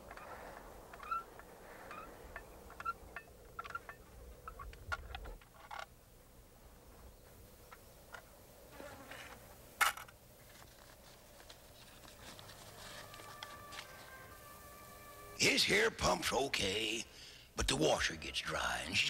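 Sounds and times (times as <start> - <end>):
paper rustling and clicks: 9.8 - 14.0
paper crackle: 10.4 - 14.4.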